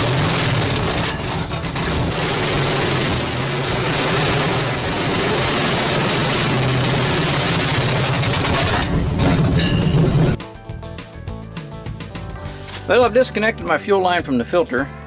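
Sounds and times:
large engine running steadily: 0.0s - 10.4s.

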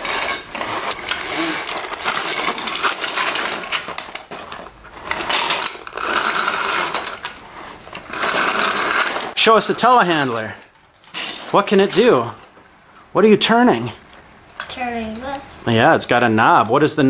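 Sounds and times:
plastic bricks clattering: 0.0s - 12.3s.

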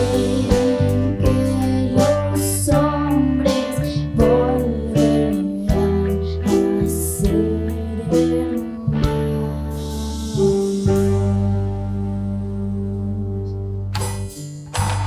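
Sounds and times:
girl singing: 0.0s - 10.9s
instrumental accompaniment with beat: 0.0s - 12.0s, 13.4s - 15.0s.

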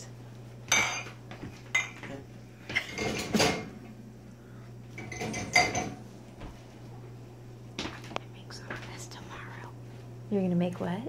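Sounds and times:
utensils clinking against dishes: 0.7s - 3.8s, 5.0s - 6.0s.

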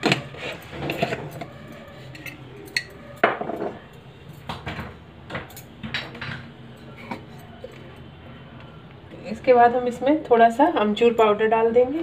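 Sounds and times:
kitchenware clinking: 0.0s - 7.8s.

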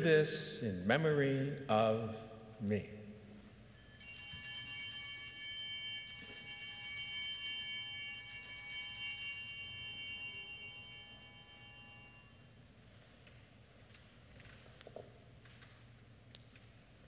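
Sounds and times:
small bells shaken: 3.7s - 12.6s.

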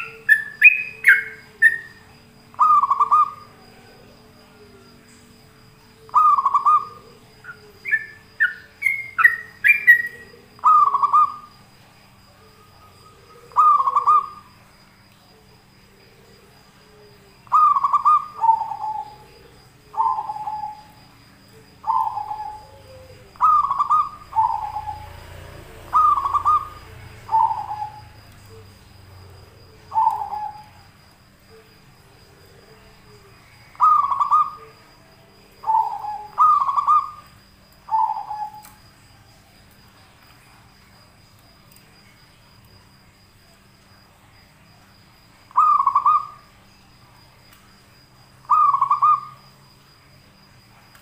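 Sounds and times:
bulbul calling: 0.0s - 3.5s, 6.1s - 11.5s, 12.7s - 14.5s, 17.5s - 21.0s, 21.8s - 25.1s, 25.9s - 28.8s, 29.7s - 30.9s, 33.7s - 34.8s, 35.6s - 38.8s, 45.5s - 46.4s, 48.4s - 49.4s.

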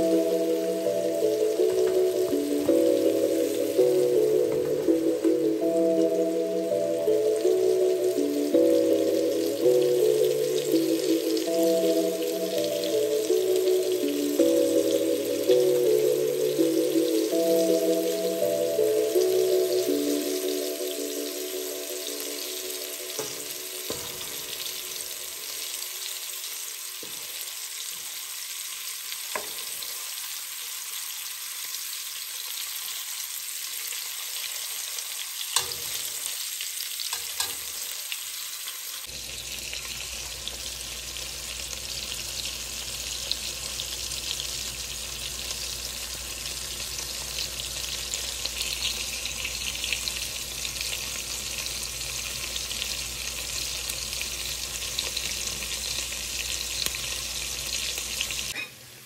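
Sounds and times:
meatballs sizzling in oil: 0.0s - 59.0s
metal fork clicking on pot: 35.6s - 36.0s, 37.1s - 37.7s.

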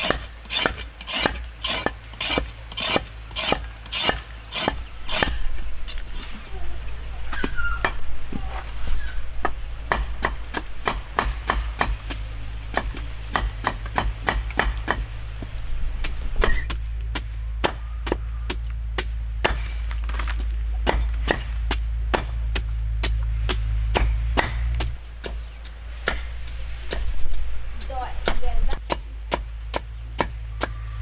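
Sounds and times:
cleaver chopping on wooden block: 9.4s - 15.1s, 16.4s - 19.7s, 20.8s - 25.4s, 28.2s - 30.8s.

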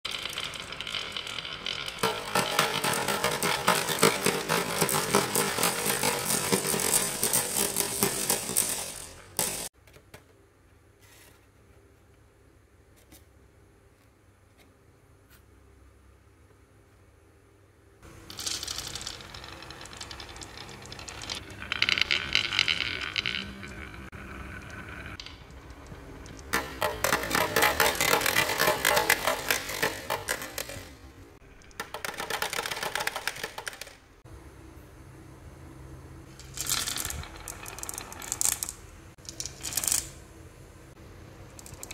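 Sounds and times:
marbles rolling and clattering: 0.0s - 9.8s, 18.0s - 34.0s, 36.3s - 40.3s, 41.5s - 41.9s.

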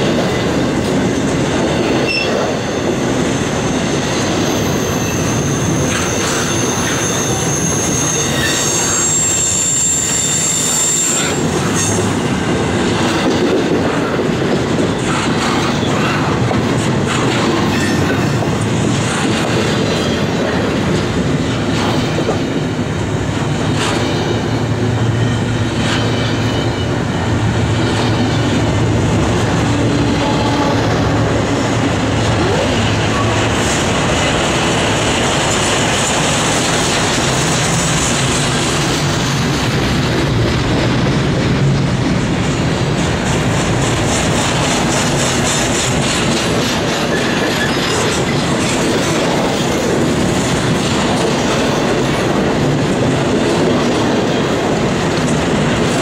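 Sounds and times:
train wheels rumbling on rails: 0.0s - 56.0s
high thin wheel squeal: 2.1s - 2.4s, 3.9s - 12.0s.

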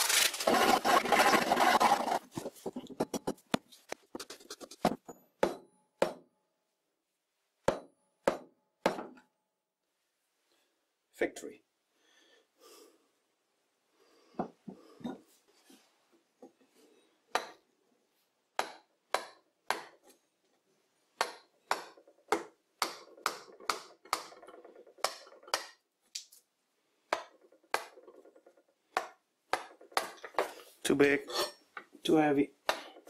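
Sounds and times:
wooden mallet knocking on wood: 5.4s - 6.2s, 7.7s - 9.2s.

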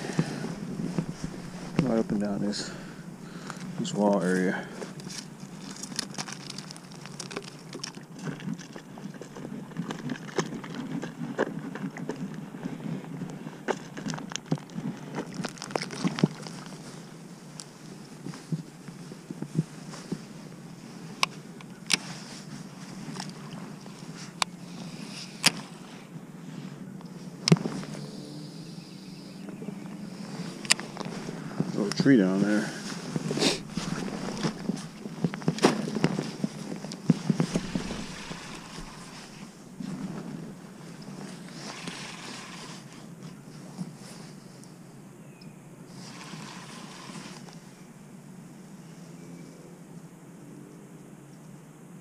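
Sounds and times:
steady low rumble: 0.0s - 6.0s, 29.8s - 41.2s
steady low hum: 0.0s - 6.1s, 22.6s - 41.6s.

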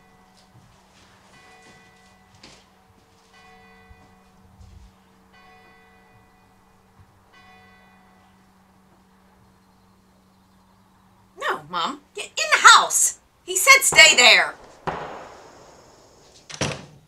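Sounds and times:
steady low hum: 14.5s - 16.5s.

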